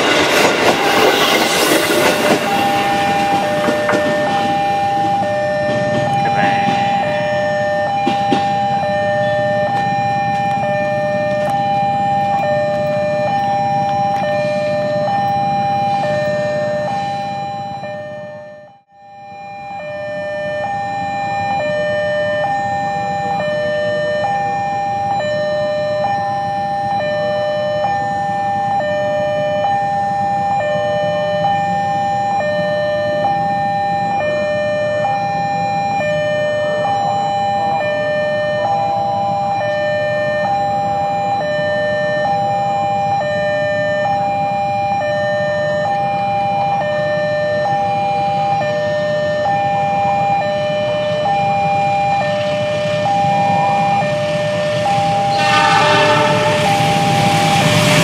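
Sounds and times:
low traffic rumble: 0:00.0 - 0:18.4
level crossing two-tone alarm: 0:00.0 - 0:58.0.

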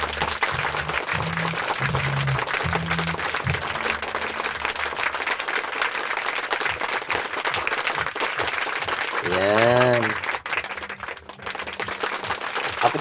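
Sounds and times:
low music notes: 0:00.0 - 0:05.8
crowd applause: 0:00.0 - 0:13.0.

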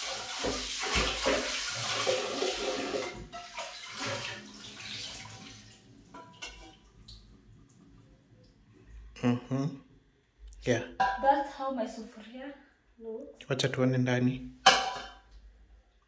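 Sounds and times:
tap water splashing over pot: 0:00.0 - 0:07.8
pot knocking in sink: 0:14.6 - 0:15.3.

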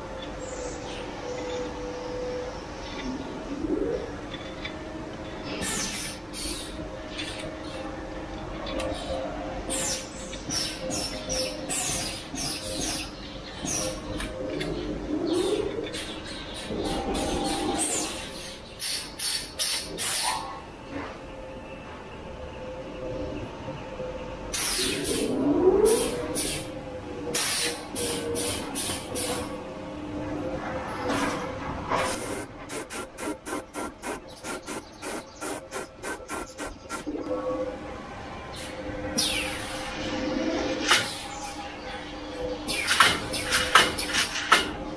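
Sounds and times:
machine humming: 0:00.0 - 0:20.0, 0:20.6 - 0:44.9
short hissing bursts: 0:32.2 - 0:37.0.

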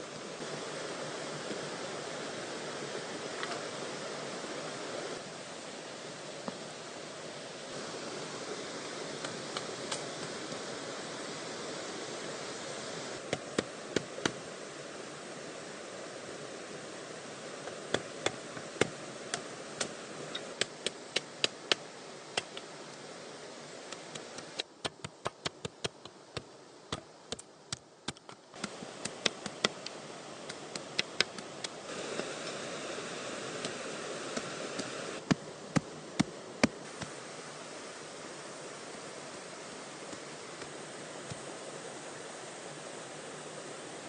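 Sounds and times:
steady background hiss: 0:00.0 - 0:44.0.

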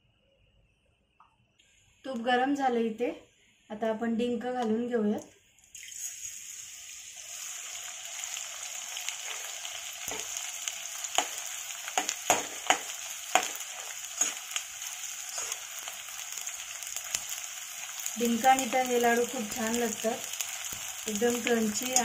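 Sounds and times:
frying sizzle with crackling pops: 0:04.6 - 0:22.0.

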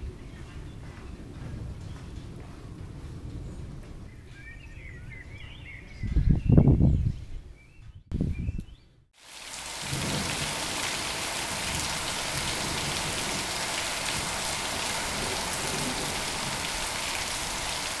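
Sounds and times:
heavy rain pouring: 0:09.2 - 0:18.0.

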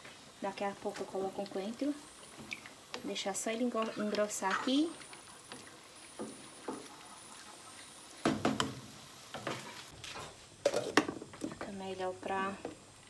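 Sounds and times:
spoon stirring simmering beans: 0:00.6 - 0:09.9.

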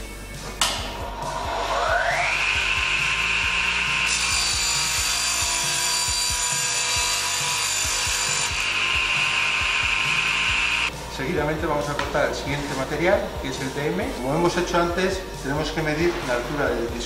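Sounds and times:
mitre saw motor whining: 0:01.0 - 0:14.4
saw blade cutting plywood: 0:02.1 - 0:10.9.

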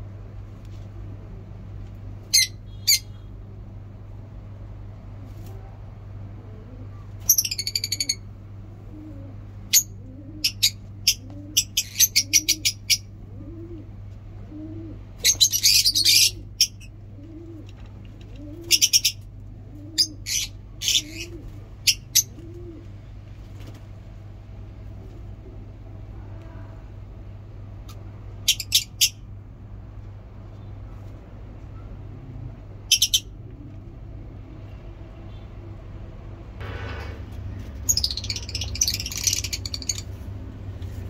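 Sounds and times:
steady low hum: 0:00.0 - 0:41.0
soft low cooing call: 0:05.3 - 0:07.2, 0:08.7 - 0:15.2
lovebirds chirping shrilly: 0:15.2 - 0:16.8, 0:37.8 - 0:40.2.

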